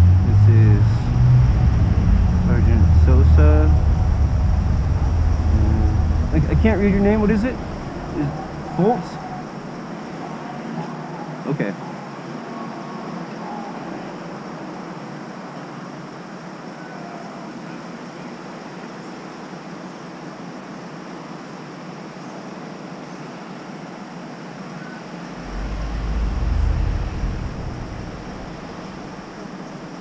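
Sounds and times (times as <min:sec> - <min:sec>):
low rumble: 0:00.0 - 0:09.7, 0:25.3 - 0:29.8
traffic noise: 0:00.0 - 0:30.0.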